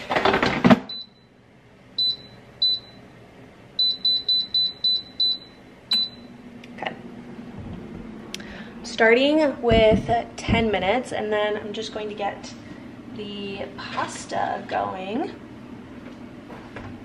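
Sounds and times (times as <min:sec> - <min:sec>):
low appliance hum: 0:00.0 - 0:17.0
control panel beeping: 0:03.8 - 0:06.3.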